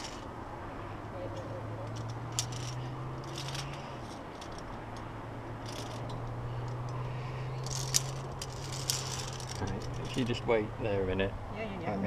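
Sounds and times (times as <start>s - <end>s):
carabiners clicking on steel cable: 0.0s - 0.3s, 1.4s - 10.4s.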